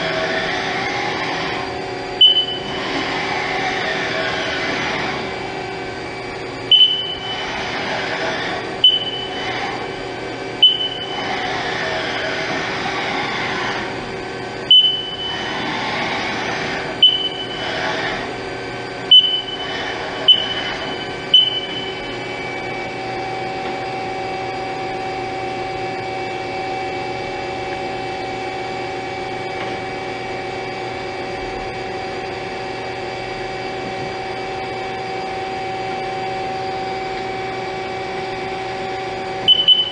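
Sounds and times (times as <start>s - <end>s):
lathe humming: 0.0s - 39.9s
steady whine: 0.0s - 39.9s
sharp ringing clicks: 2.2s - 2.8s, 6.7s - 7.3s, 8.8s - 9.3s, 10.6s - 11.2s, 14.7s - 15.4s, 17.0s - 17.6s, 19.1s - 19.7s, 20.3s - 20.7s, 21.3s - 22.1s, 39.5s - 39.9s.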